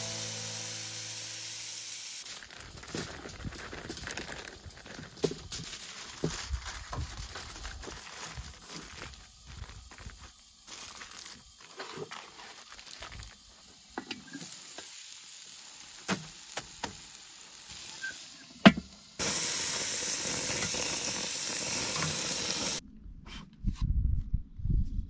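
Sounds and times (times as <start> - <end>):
burger patties sizzling: 0.0 - 22.8
foil crinkling: 2.2 - 18.2, 19.2 - 22.8.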